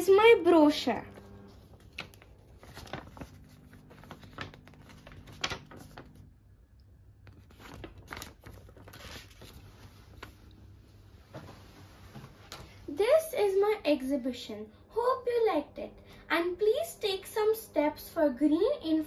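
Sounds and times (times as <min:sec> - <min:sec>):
paper brochure rustling: 0:01.1 - 0:06.3, 0:07.2 - 0:10.5.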